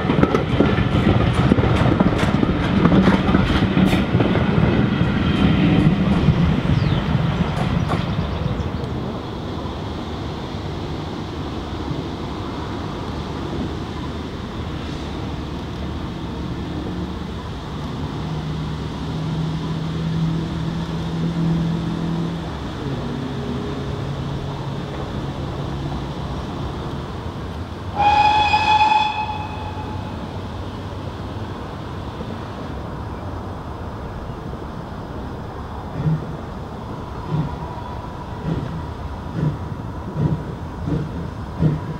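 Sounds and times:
steam locomotive rumbling: 0:00.0 - 0:41.9
steam whistle blast: 0:27.9 - 0:30.3.

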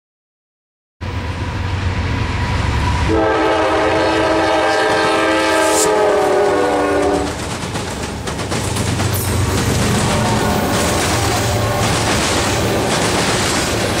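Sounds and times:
freight train passing: 0:01.0 - 0:14.0
locomotive air horn: 0:03.0 - 0:07.4, 0:09.9 - 0:13.0.

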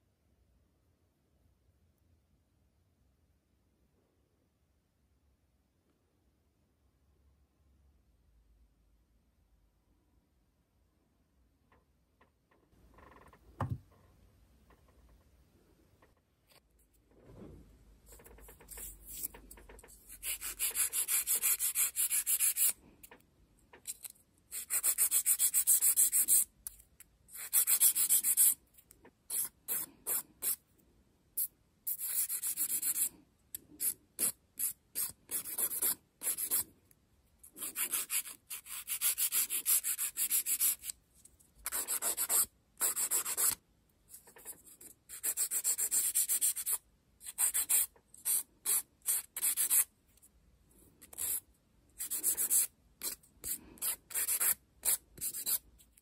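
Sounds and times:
nail file scraping fingernail: 0:18.1 - 0:22.8, 0:23.8 - 0:30.6, 0:31.4 - 0:36.6, 0:37.4 - 0:41.0, 0:41.6 - 0:49.9, 0:51.0 - 0:56.0.

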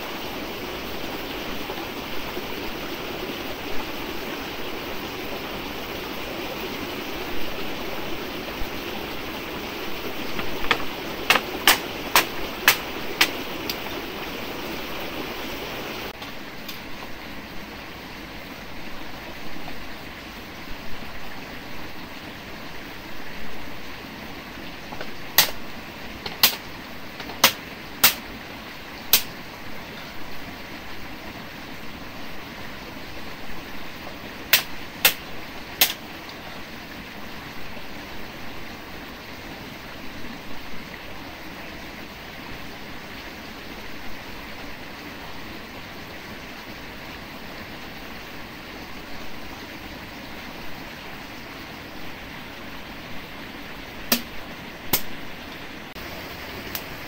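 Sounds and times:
stream water rushing: 0:00.0 - 0:57.0
sharp clicks: 0:10.3 - 0:14.0, 0:26.2 - 0:28.2.

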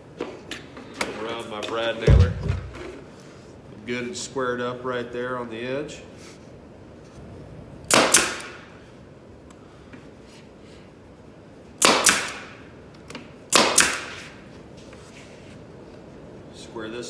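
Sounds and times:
pneumatic nailer firing: 0:07.9 - 0:08.7, 0:11.8 - 0:12.6, 0:13.5 - 0:14.4.

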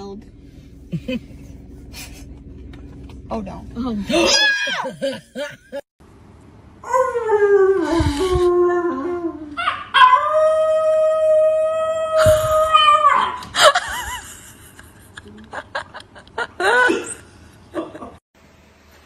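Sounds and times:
puppy howling: 0:08.8 - 0:13.4.

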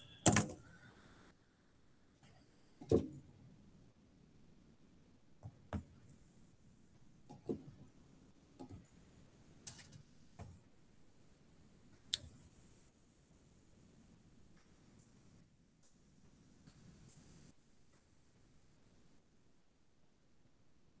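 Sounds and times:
faint clicks and light knocks: 0:14.5 - 0:15.2.

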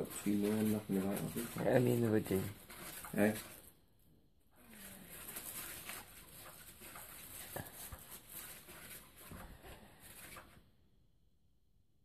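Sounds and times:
cat toy scratchy rustle: 0:00.0 - 0:03.8, 0:04.5 - 0:10.7.

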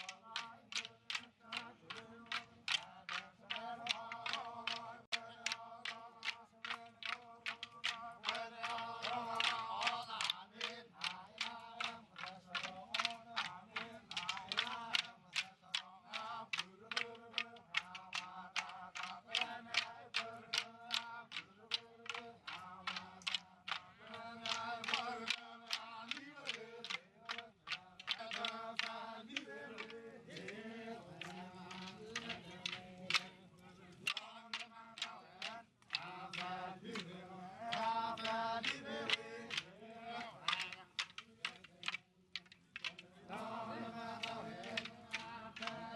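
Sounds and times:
voices chanting in unison: 0:00.0 - 0:45.9
sticks clacking together: 0:31.2 - 0:33.2, 0:34.1 - 0:36.0, 0:40.4 - 0:43.0.

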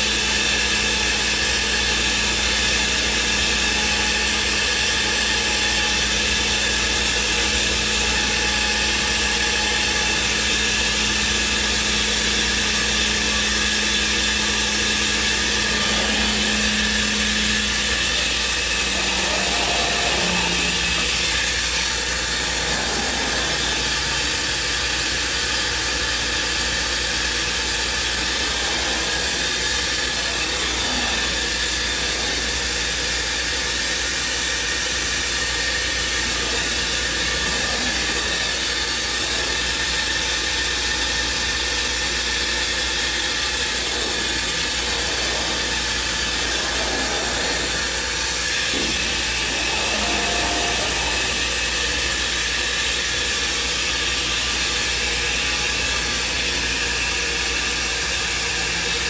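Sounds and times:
rushing hiss of air extraction: 0:13.0 - 0:53.6.

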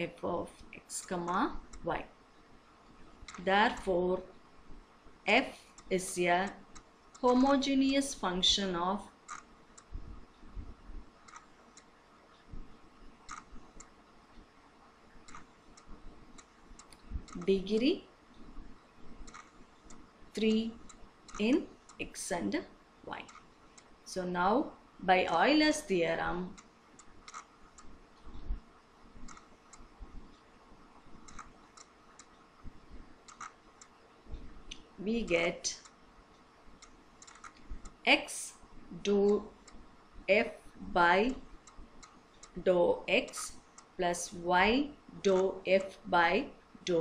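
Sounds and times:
soft low thumps: 0:12.5 - 0:12.8, 0:17.0 - 0:17.4.

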